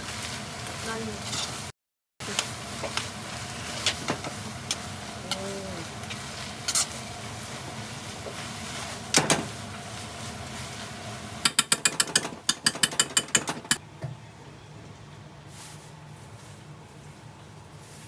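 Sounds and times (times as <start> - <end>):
wooden spatula knocking on frying pan: 11.4 - 13.8.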